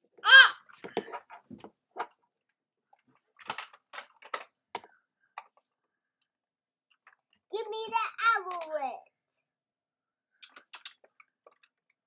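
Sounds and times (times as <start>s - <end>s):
plastic toys clicking and clacking: 3.0s - 5.6s, 8.2s - 8.9s, 10.4s - 12.0s.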